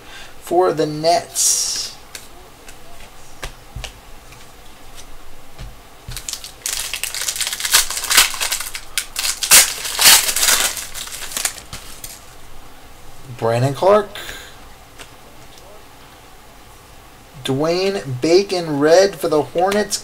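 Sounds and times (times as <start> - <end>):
foil wrapper crinkling and tearing: 6.1 - 12.3.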